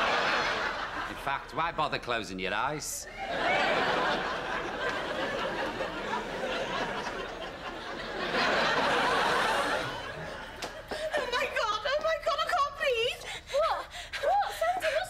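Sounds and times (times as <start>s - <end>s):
studio audience laughing: 0.0s - 1.5s, 3.1s - 11.6s.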